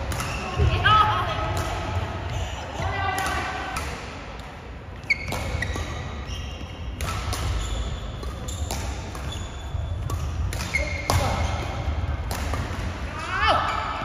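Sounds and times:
racket hitting shuttlecock: 0.0s - 0.6s, 1.4s - 13.8s
shoes squeaking on court: 5.0s - 11.8s.

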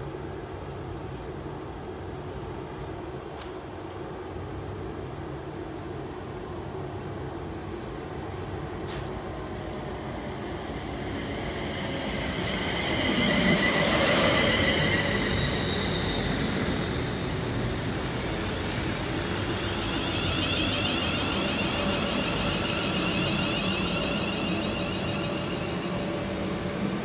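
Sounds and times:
train passing with rumble: 0.0s - 27.0s
high whining tones: 18.3s - 26.8s.

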